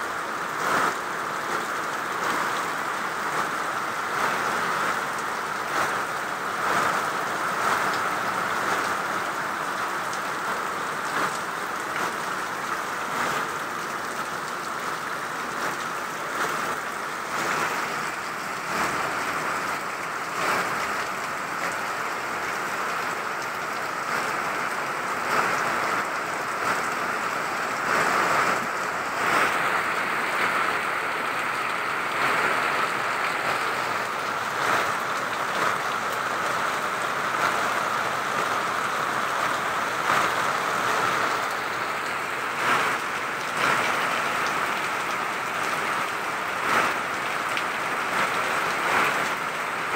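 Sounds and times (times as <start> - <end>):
steady hiss of rain: 0.0 - 49.9
water pouring off a roof: 0.0 - 49.9
water spattering: 16.0 - 49.9.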